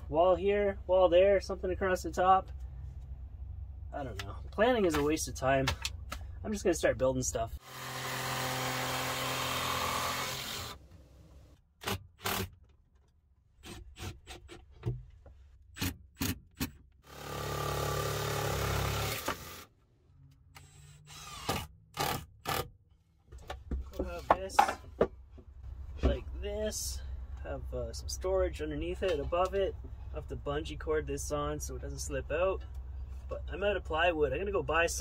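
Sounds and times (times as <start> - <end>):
jigsaw cutting plywood: 7.6 - 10.8, 17.0 - 19.6.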